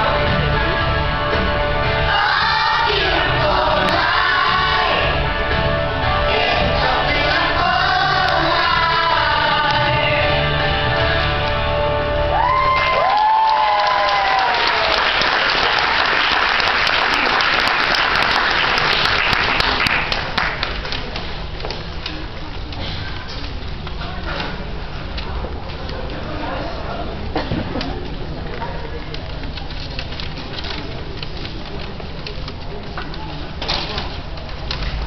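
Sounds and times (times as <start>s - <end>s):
musical accompaniment: 0.0s - 13.2s
children's choir singing: 1.6s - 11.5s
audience applause: 12.4s - 21.0s.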